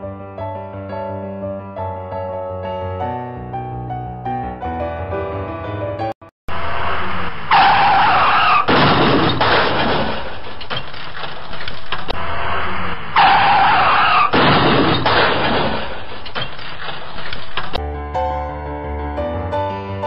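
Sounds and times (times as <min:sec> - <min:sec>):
car crash with breaking glass: 0:06.8 - 0:17.8
tyres screeching: 0:06.8 - 0:17.8.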